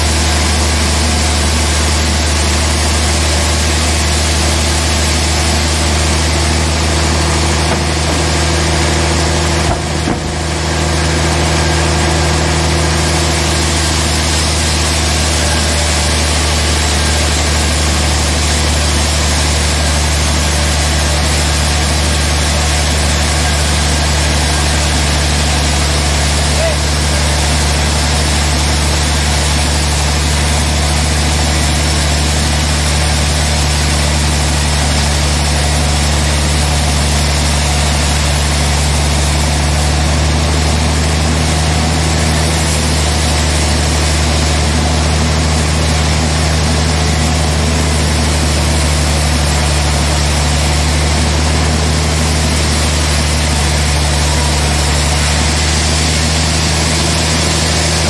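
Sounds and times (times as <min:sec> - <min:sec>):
sawmill machine hum: 0:00.0 - 0:58.0.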